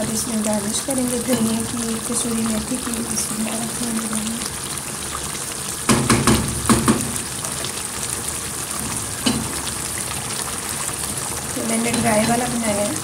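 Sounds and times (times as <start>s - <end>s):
curry sizzling in a frying pan: 0.0s - 13.0s
sharp knocks: 5.9s - 7.2s.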